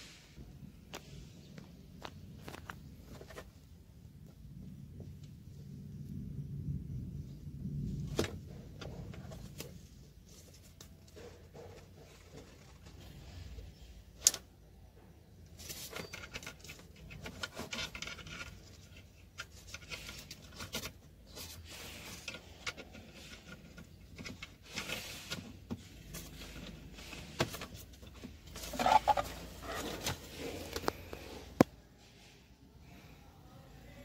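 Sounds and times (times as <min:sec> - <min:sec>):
cables rustling against paper: 0:15.5 - 0:31.7.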